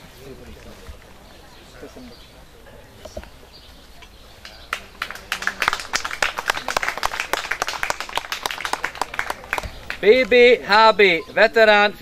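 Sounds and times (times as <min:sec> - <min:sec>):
crowd applauding: 0:04.4 - 0:10.4.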